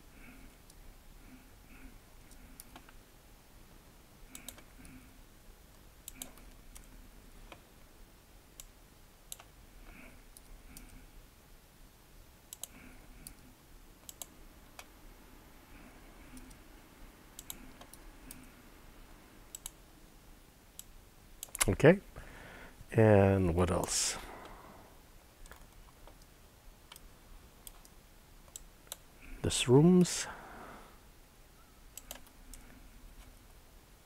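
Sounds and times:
mouse and keyboard clicks: 6.1s - 6.9s, 17.4s - 18.5s, 32.0s - 32.7s.

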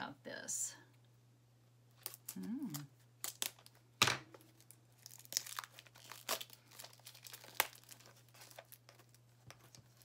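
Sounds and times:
packaging ripping: 2.0s - 3.8s, 4.4s - 10.0s
packaging crackling and rustling: 2.0s - 10.0s.

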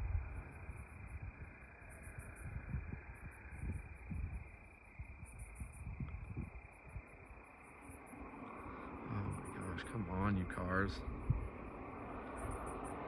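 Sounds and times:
crickets chirping: 0.0s - 13.0s
low uneven rumble: 7.9s - 13.0s.

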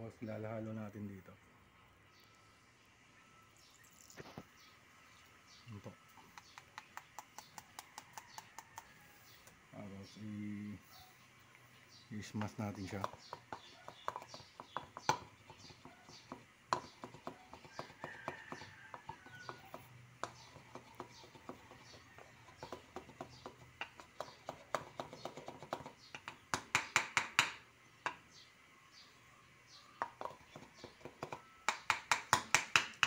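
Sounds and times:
pestle tapping in a mortar: 6.2s - 9.0s, 12.3s - 28.2s, 30.0s - 33.0s.

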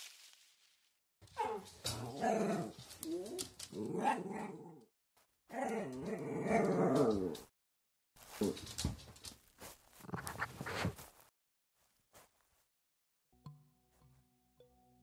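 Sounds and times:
dog growling and barking: 1.4s - 4.9s, 5.5s - 7.5s.

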